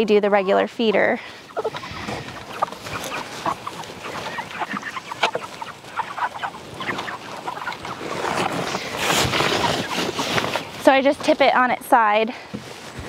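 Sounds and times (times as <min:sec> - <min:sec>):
chickens clucking: 0:00.0 - 0:12.2
feed trough rustling and scraping: 0:01.6 - 0:11.8.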